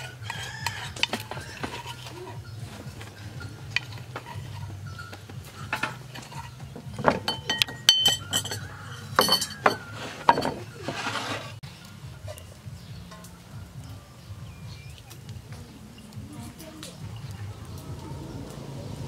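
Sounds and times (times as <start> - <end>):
metal spoon clinking and scraping: 0.0 - 14.0
bright ringing clinks: 7.3 - 10.6.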